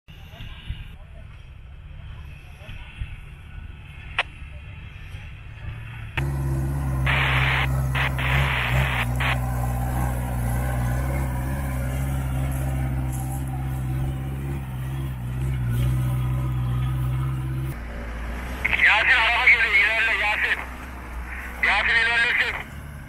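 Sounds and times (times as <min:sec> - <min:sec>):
pickup engine low drone: 0:03.3 - 0:23.0
rush of noise: 0:06.2 - 0:10.0.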